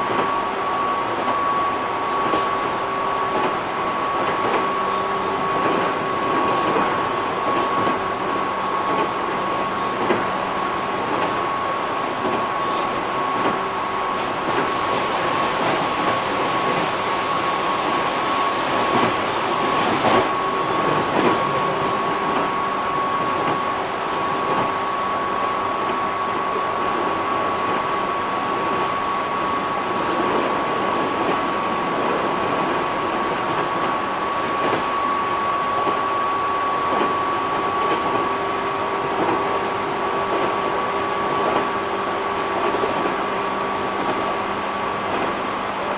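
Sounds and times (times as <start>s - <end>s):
train motor whine: 0.0s - 30.9s
train wheels rumbling on rail: 0.0s - 45.9s.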